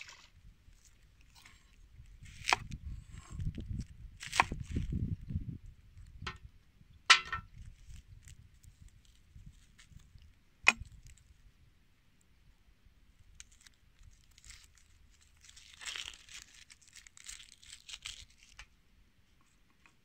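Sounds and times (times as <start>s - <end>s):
onion skin peeled rustling: 2.2s - 5.0s, 13.4s - 18.7s.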